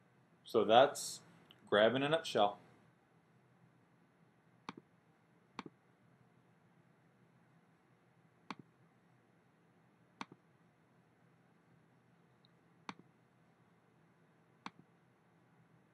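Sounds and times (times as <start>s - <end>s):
computer mouse clicks: 8.5s - 8.7s, 10.2s - 10.4s, 14.6s - 14.9s.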